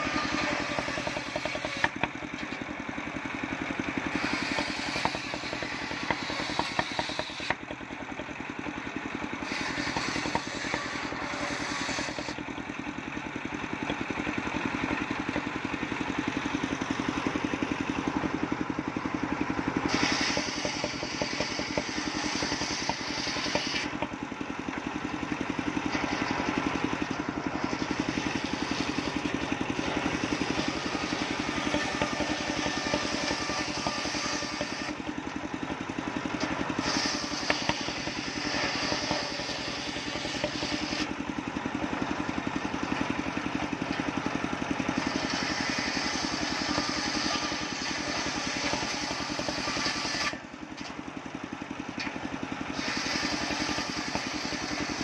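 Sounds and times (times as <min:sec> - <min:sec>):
circular saw ripping a log: 0:00.0 - 0:02.7, 0:03.8 - 0:07.7, 0:09.4 - 0:12.4, 0:19.8 - 0:24.2, 0:27.5 - 0:35.4, 0:36.4 - 0:41.2, 0:44.8 - 0:50.5, 0:52.7 - 0:55.0
sharp wooden knocks: 0:04.3 - 0:07.8, 0:09.8 - 0:11.0, 0:31.6 - 0:34.9.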